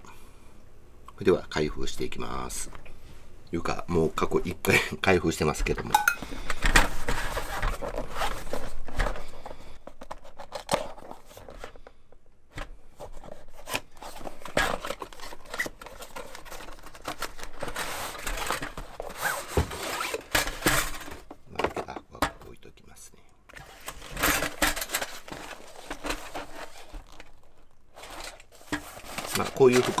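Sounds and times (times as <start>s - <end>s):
contents sliding out of box: 6.2s - 11.9s, 12.6s - 21.4s, 23.5s - 30.0s
cardboard box rustling and scraping: 6.8s - 11.8s, 12.9s - 21.3s, 23.6s - 30.0s.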